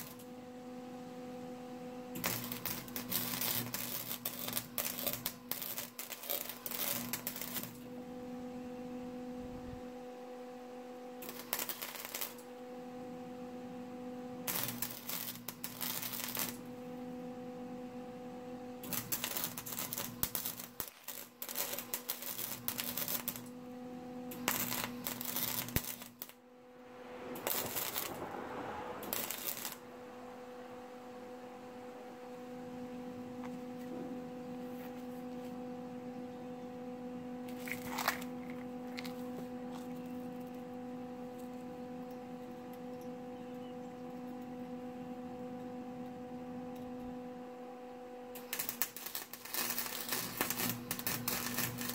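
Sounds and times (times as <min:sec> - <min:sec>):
welder arc crackling: 0:00.0 - 0:00.3, 0:02.0 - 0:08.3, 0:11.2 - 0:12.6, 0:14.3 - 0:31.6, 0:37.4 - 0:40.7, 0:48.3 - 0:51.9
steady electrical hum: 0:00.0 - 0:51.9.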